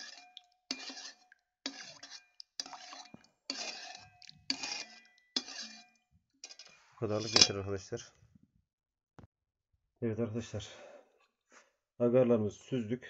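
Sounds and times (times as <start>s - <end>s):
metal spoon scraping a metal pot: 0.0s - 7.8s.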